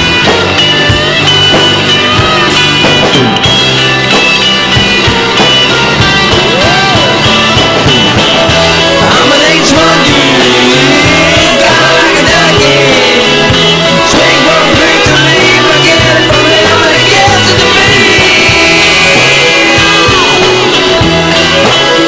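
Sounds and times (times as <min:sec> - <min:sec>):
rock song with guitar: 0:00.0 - 0:22.0.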